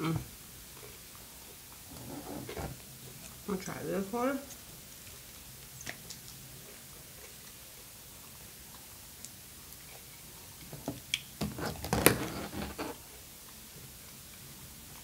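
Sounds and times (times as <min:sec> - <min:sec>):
plastic crackling and knocks: 0:10.7 - 0:13.0.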